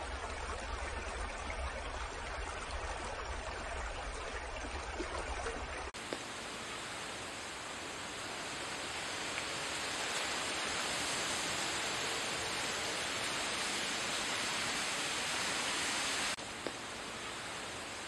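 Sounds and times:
forest rushing hiss: 6.0 - 18.0.

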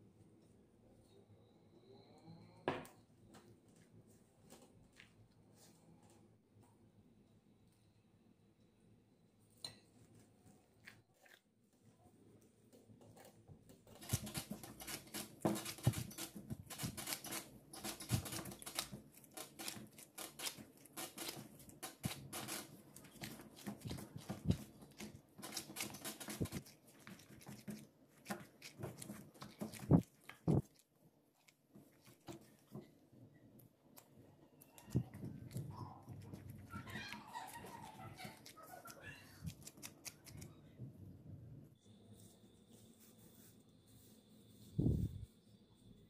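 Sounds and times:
dough squelching and slapping: 13.8 - 33.0.

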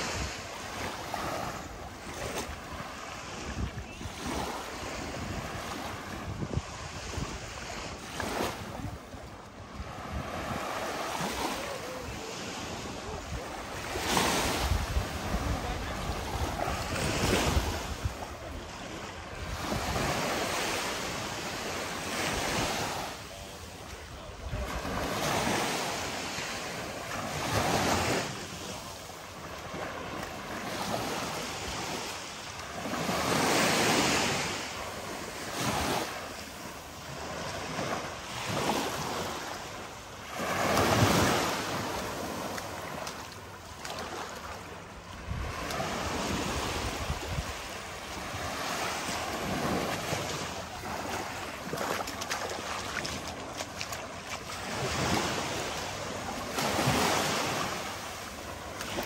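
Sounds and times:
waves breaking on shore: 0.0 - 59.0
wind on microphone: 1.2 - 12.3, 13.0 - 21.2, 45.2 - 50.5.

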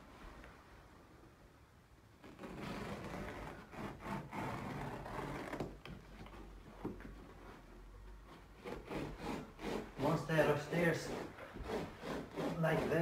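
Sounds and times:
blade cutting carpet: 2.4 - 5.7, 8.6 - 13.0.

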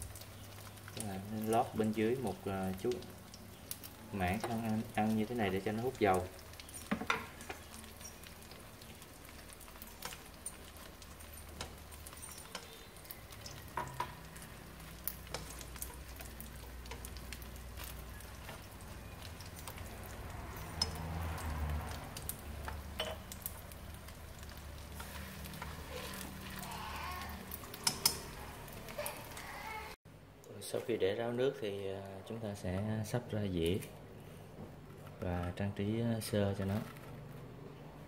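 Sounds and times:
spring rolls sizzling in oil: 0.0 - 30.0
chopsticks tapping pan: 4.3 - 8.3, 9.7 - 23.6, 27.5 - 29.4.

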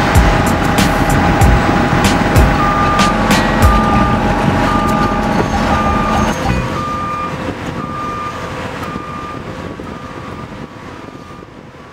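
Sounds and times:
machinery engine rumble: 0.0 - 11.9
backup alarm beeping: 2.5 - 10.5.

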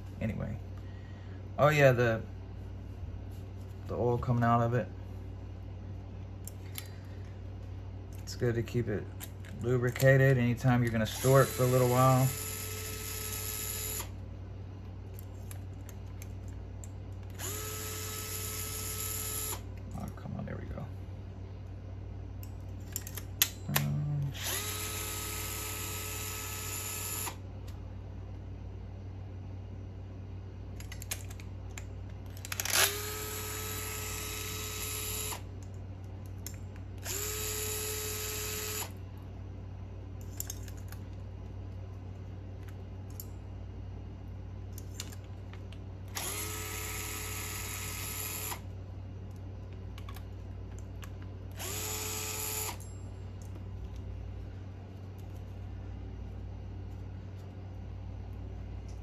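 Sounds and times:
steady low hum: 0.0 - 59.0
power driver whining: 10.8 - 14.2, 17.2 - 19.7, 22.9 - 27.4, 32.3 - 35.5, 37.0 - 39.0, 46.1 - 48.7, 51.5 - 52.9
clicks of tools and parts: 22.4 - 23.9, 40.2 - 41.0.

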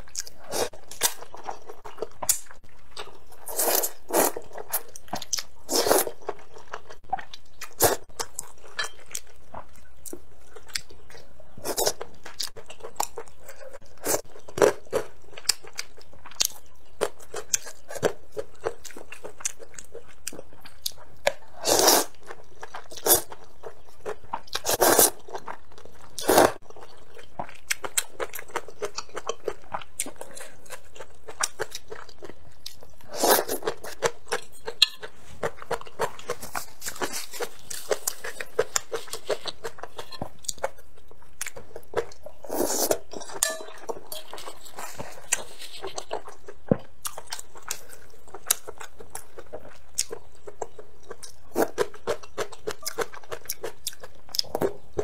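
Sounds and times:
chewing with wet clicks: 6.2 - 11.3, 14.2 - 21.4, 25.2 - 42.4, 45.8 - 55.0.

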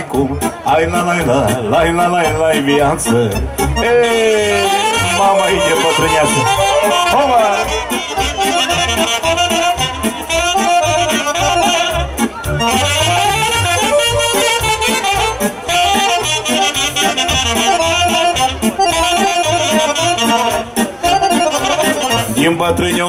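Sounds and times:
accordion melody: 0.0 - 23.0
drums: 0.0 - 23.0
keyboard: 0.0 - 23.0
saxophones: 1.8 - 22.5.

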